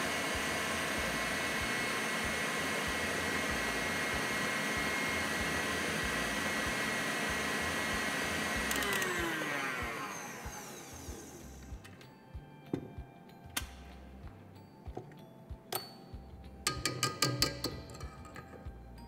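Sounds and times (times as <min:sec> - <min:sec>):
stand mixer motor whining: 0:00.0 - 0:11.9.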